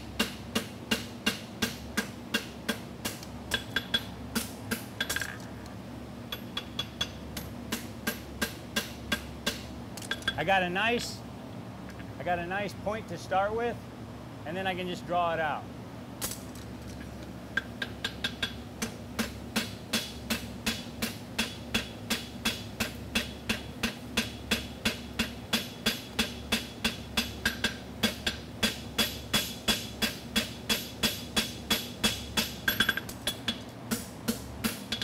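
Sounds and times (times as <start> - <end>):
cooling fan buzzing: 0.0 - 35.0
hammer striking metal on anvil: 0.2 - 5.2, 6.3 - 10.4, 17.6 - 35.0.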